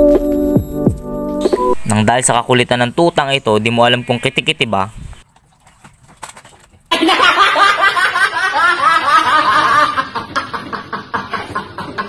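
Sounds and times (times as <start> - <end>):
boy laughing: 6.9 - 12.0.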